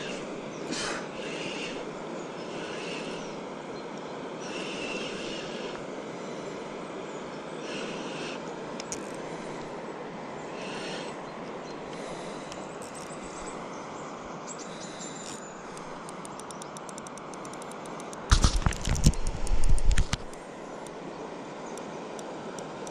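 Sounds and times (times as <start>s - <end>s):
distant road traffic hum: 0.0s - 22.9s
spinning reel ticking: 15.8s - 18.3s, 22.6s - 22.9s.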